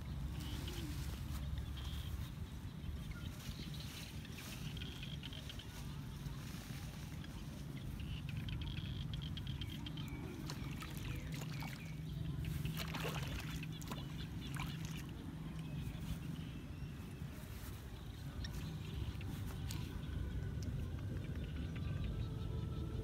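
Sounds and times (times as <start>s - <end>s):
steady low hum: 0.0s - 23.0s
water splashes: 6.9s - 16.4s.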